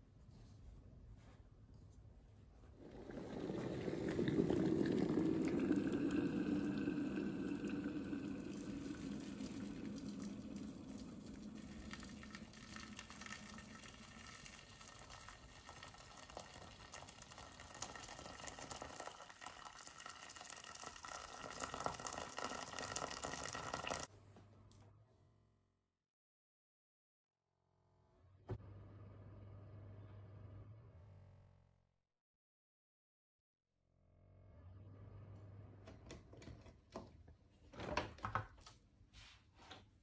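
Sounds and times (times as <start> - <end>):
water pouring into metal pan: 2.8 - 24.1.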